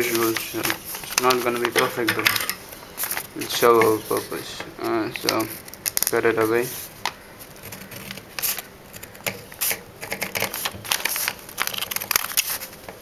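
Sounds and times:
scissors cutting paper: 0:07.6 - 0:12.7.

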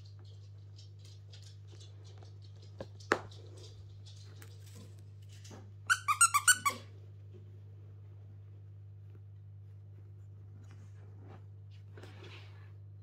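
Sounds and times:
high squeaks or yips: 0:05.9 - 0:06.8.

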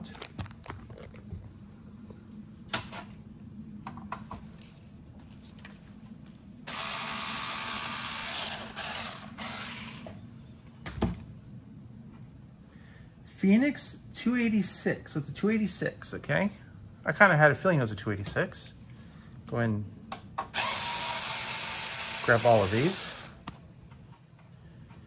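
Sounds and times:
cordless electric screwdriver running: 0:06.7 - 0:10.1, 0:20.6 - 0:23.4.

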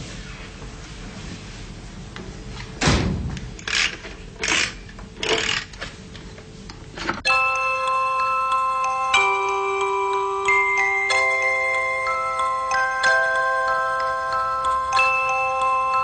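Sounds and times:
music box tinkling melody: 0:07.3 - 0:16.0.

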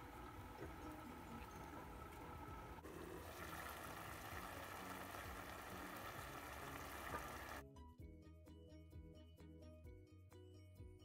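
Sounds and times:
liquid simmering in a pot: 0:00.0 - 0:07.6.

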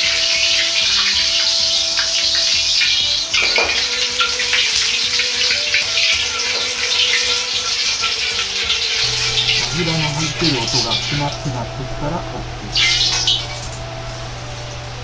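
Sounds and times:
hot oil crackling in a wok: 0:00.0 - 0:11.6, 0:12.4 - 0:15.0.

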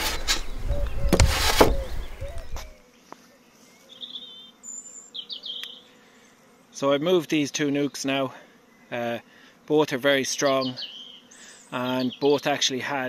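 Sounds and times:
wooden hive roof handling clunks: 0:00.0 - 0:02.7
faint buzz of honeybees: 0:00.0 - 0:13.0.

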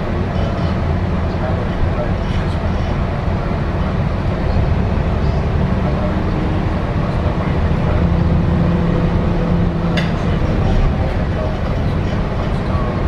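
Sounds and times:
bus engine and road noise: 0:00.0 - 0:13.0.

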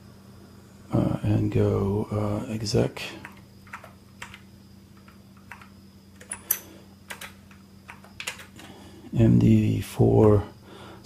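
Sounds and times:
faint low hum: 0:00.0 - 0:11.0
keyboard key clicks: 0:07.1 - 0:08.6.

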